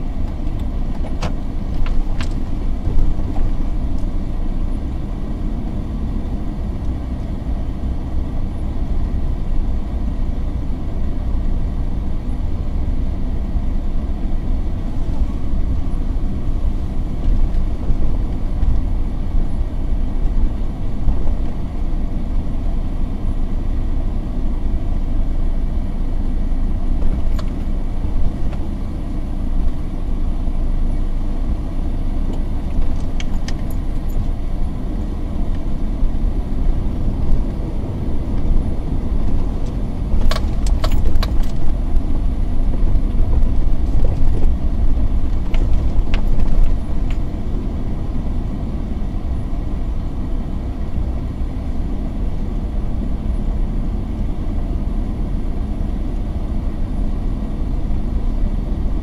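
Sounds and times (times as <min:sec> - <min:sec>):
vehicle rumbling on dirt road: 0:00.0 - 0:59.0.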